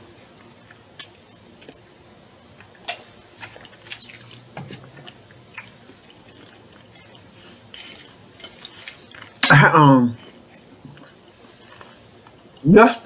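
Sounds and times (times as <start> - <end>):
person chewing: 2.5 - 9.5, 10.5 - 12.6.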